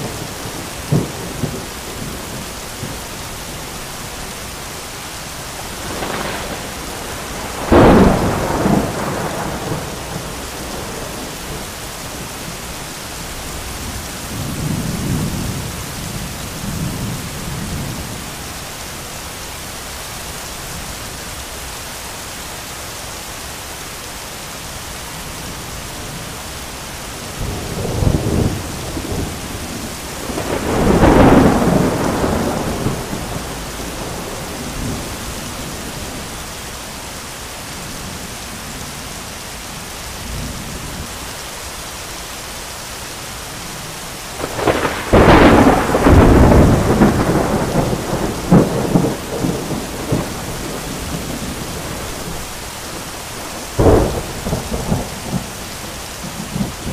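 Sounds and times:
thunder rumbling and cracking: 0:00.0 - 0:04.3, 0:05.5 - 0:18.1, 0:27.2 - 0:36.4, 0:44.3 - 0:56.9
heavy rain pouring: 0:00.0 - 0:56.9.

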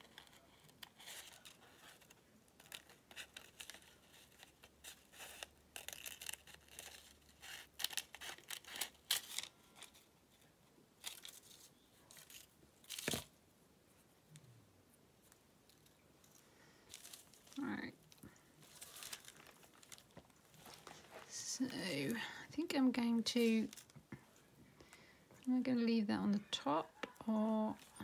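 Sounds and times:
paper rustling: 0:00.0 - 0:13.3, 0:15.2 - 0:22.3.

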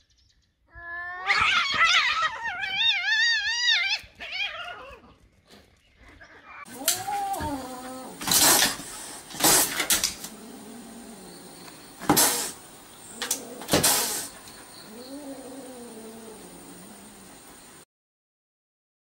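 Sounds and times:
faint cries: 0:06.6 - 0:09.4
short breathy bursts: 0:08.1 - 0:11.2, 0:11.9 - 0:14.7.

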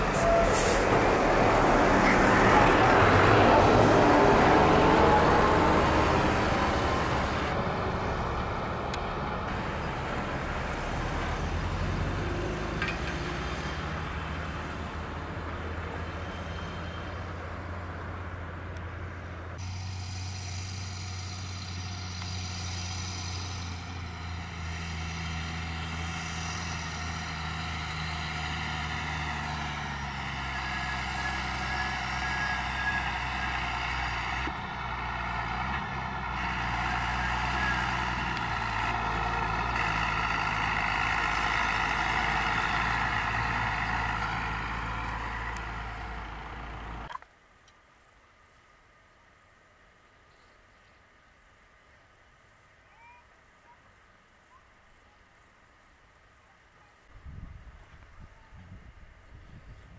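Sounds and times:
diesel engine running: 0:00.0 - 0:47.1.

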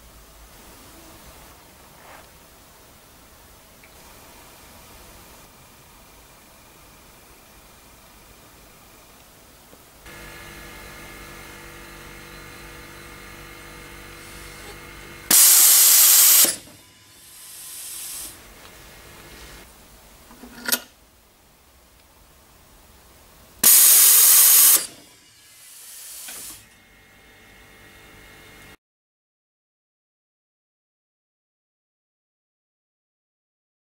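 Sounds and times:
steady hum: 0:04.0 - 0:19.7
compressed air hissing: 0:14.0 - 0:19.6, 0:23.6 - 0:26.7.

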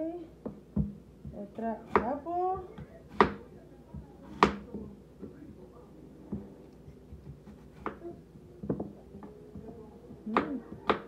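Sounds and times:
knife chopping on wooden board: 0:00.4 - 0:02.2, 0:04.3 - 0:04.8, 0:10.3 - 0:11.0.

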